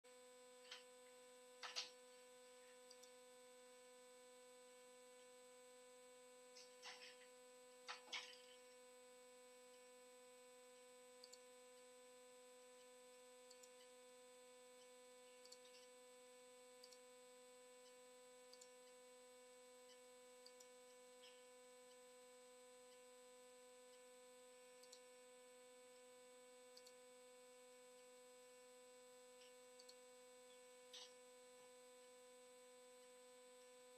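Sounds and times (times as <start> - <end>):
faint electrical hum: 0.1 - 33.9
faint clicks: 11.2 - 11.4, 16.8 - 17.0, 24.8 - 25.1, 26.8 - 27.0, 29.4 - 31.2.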